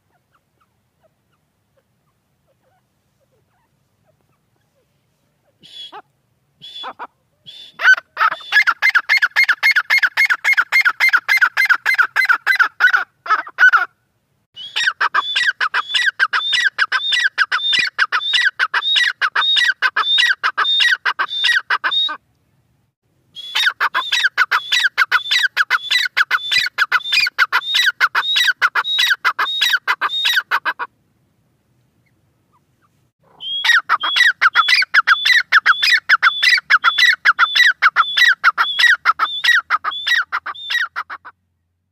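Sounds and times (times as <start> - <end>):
bird calling shrill repeated notes: 6.6 - 12.7, 14.6 - 22.2, 23.3 - 30.9, 33.2 - 41.3.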